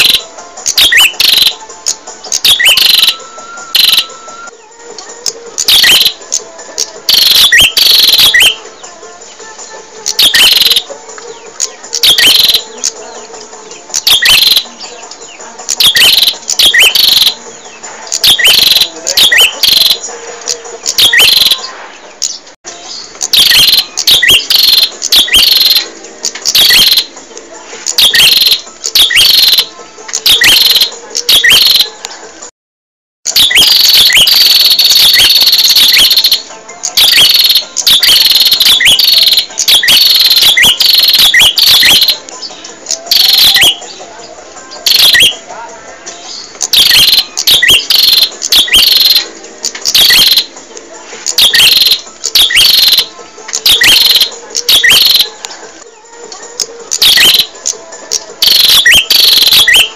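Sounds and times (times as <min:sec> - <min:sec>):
bird calling with sharp chirps: 0:00.0 - 0:01.6.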